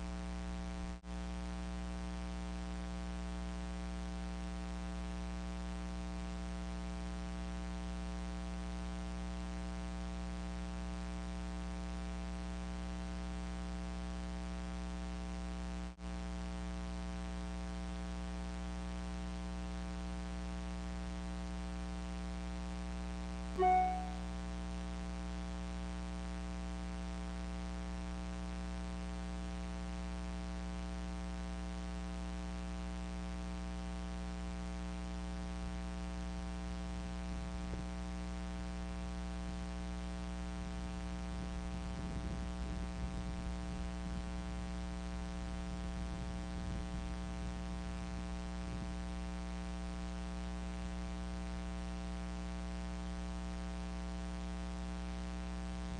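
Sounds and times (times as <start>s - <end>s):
short pitched note: 23.6s - 24.2s.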